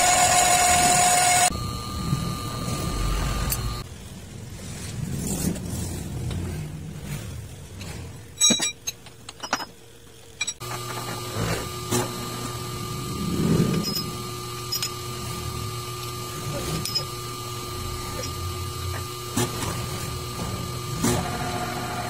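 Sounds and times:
machine hum: 0:00.0 - 0:22.0
metal-on-metal clanks: 0:08.4 - 0:10.6.

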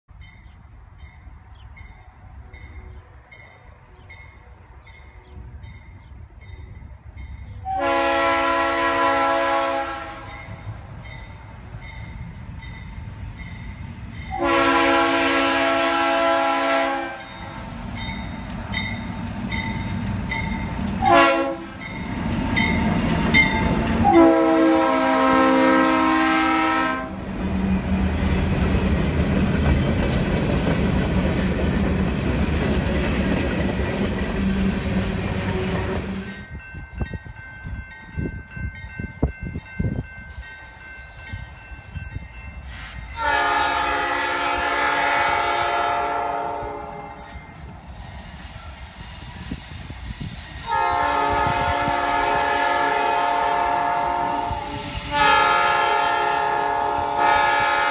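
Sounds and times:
distant train horn: 0:07.5 - 0:10.8, 0:14.3 - 0:18.2, 0:19.7 - 0:27.9, 0:42.7 - 0:47.4, 0:50.6 - 0:57.9
locomotive air horn: 0:07.6 - 0:10.5, 0:14.3 - 0:17.8, 0:21.0 - 0:21.9, 0:24.0 - 0:27.2, 0:42.7 - 0:47.2, 0:50.6 - 0:57.9.

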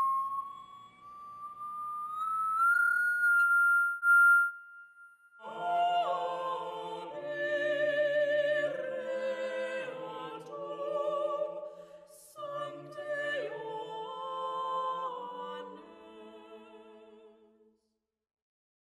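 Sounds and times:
high pure tone: 0:00.0 - 0:05.6
voices singing sustained chords: 0:05.3 - 0:17.4.

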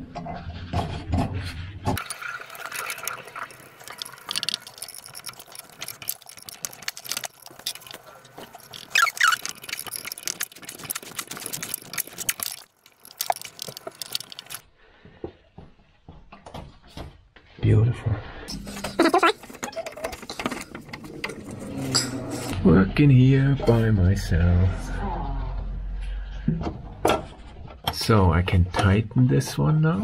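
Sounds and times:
flaring tool squeak: 0:08.6 - 0:09.9.

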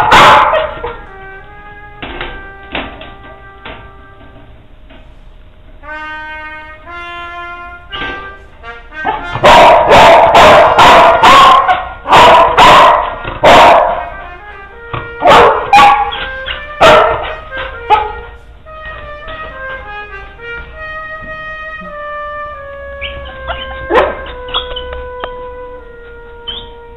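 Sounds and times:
dog barking: 0:00.0 - 0:01.0, 0:09.0 - 0:14.2, 0:15.2 - 0:18.4, 0:23.0 - 0:24.9
background music: 0:05.8 - 0:26.9.

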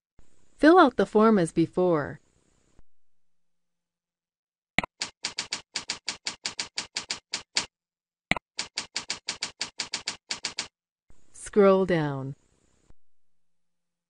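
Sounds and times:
computer keyboard typing: 0:04.8 - 0:07.7, 0:08.3 - 0:10.7.

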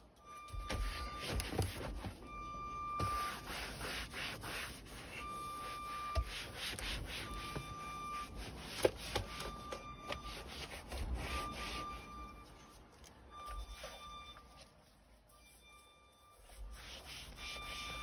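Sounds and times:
cloth rubbing on leather: 0:03.0 - 0:09.4.

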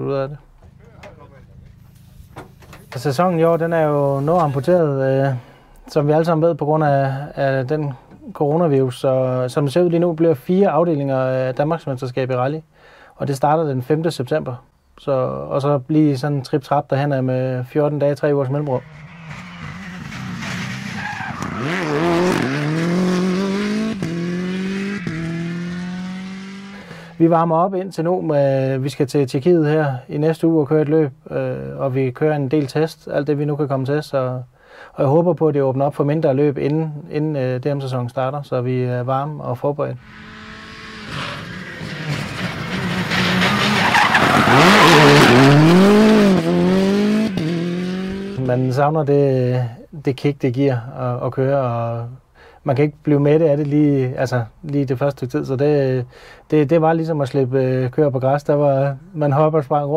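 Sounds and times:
rally car engine accelerating: 0:18.6 - 0:27.2, 0:40.0 - 0:48.5
tyre noise: 0:40.0 - 0:48.4.

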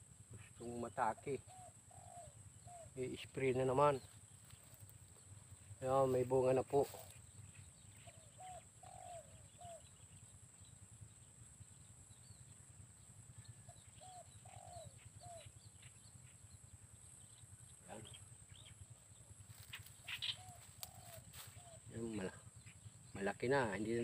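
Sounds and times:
small birds chirping: 0:00.0 - 0:24.0
dove cooing: 0:00.4 - 0:04.9, 0:07.9 - 0:10.1, 0:13.6 - 0:15.5, 0:19.5 - 0:22.6.

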